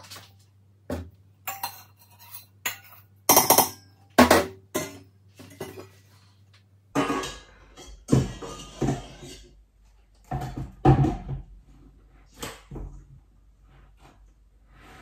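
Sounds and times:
metal bowls clanking: 0:01.4 - 0:04.0, 0:06.9 - 0:09.6.

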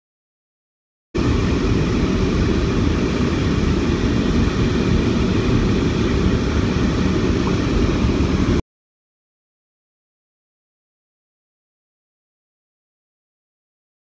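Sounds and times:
steady low rumbling: 0:01.2 - 0:08.6.

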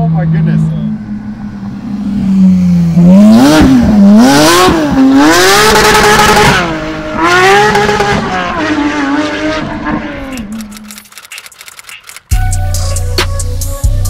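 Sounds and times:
car engine revving hard: 0:01.8 - 0:10.5.

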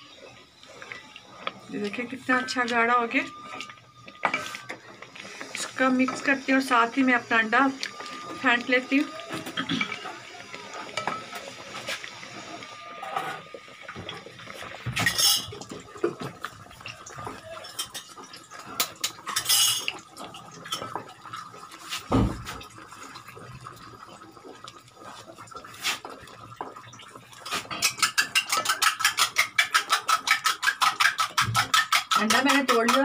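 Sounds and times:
utensil clinking against pot: 0:15.0 - 0:21.0, 0:27.7 - 0:33.0
egg beaten in bowl: 0:27.4 - 0:33.0.

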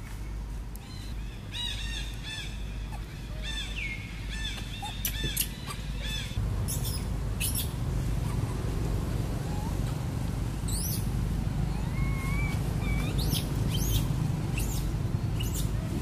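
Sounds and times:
high-pitched chirping calls: 0:01.6 - 0:08.7, 0:10.7 - 0:15.8.

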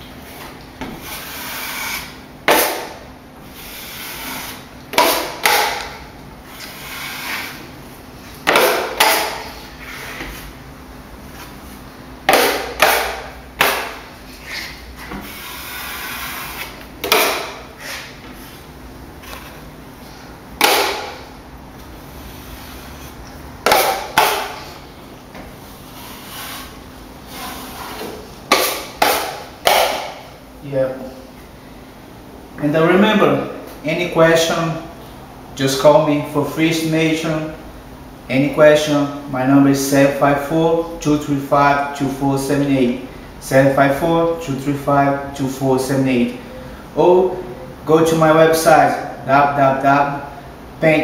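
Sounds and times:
taping knife scraping: 0:01.0 - 0:02.9, 0:03.5 - 0:07.7, 0:12.3 - 0:18.6, 0:25.8 - 0:30.1.

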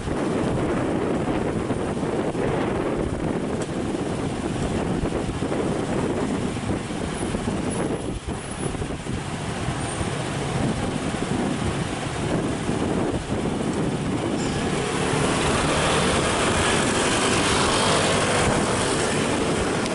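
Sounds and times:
city traffic: 0:00.0 - 0:19.9
tram running on track: 0:07.2 - 0:19.9.

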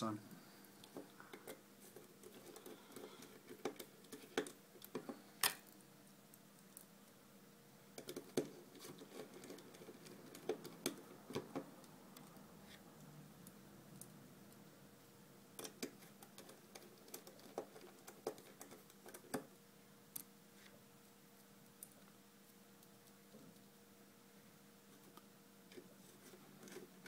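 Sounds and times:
small parts clicking and tapping: 0:00.8 - 0:06.9, 0:08.0 - 0:12.4, 0:15.5 - 0:20.3.

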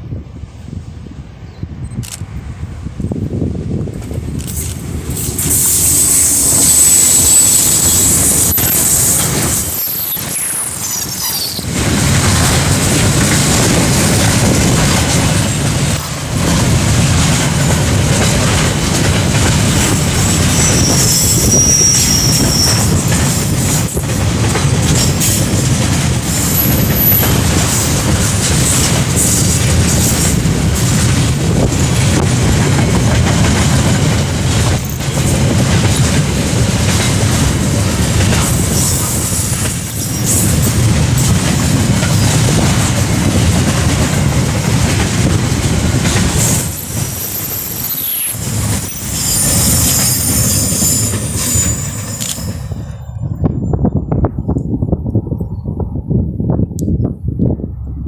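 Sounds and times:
train wheels rumbling on rails: 0:00.0 - 0:58.0
high wheel squeal: 0:05.2 - 0:11.7, 0:20.2 - 0:23.1, 0:46.5 - 0:53.0.

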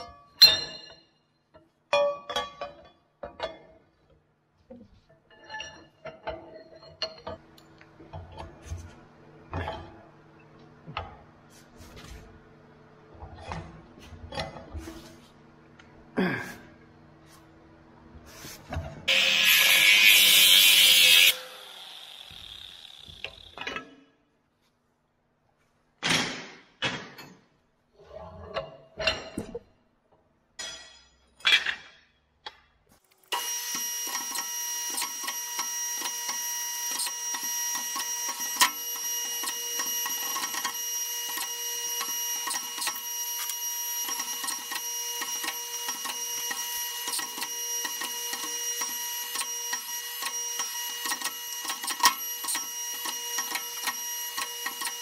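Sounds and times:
metal-cutting saw whining: 0:19.1 - 0:23.8, 0:33.3 - 0:55.0.

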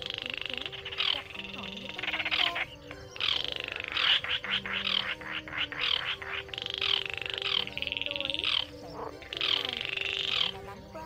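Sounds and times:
bird rattling trill: 0:00.0 - 0:10.8.

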